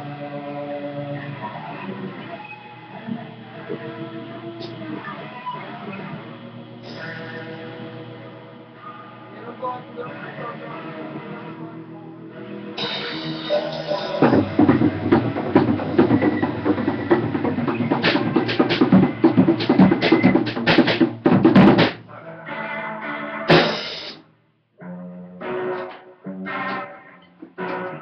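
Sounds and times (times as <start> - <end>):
strummed guitar: 0.0 - 28.0
drum kit played hard: 12.8 - 22.1, 23.5 - 24.2.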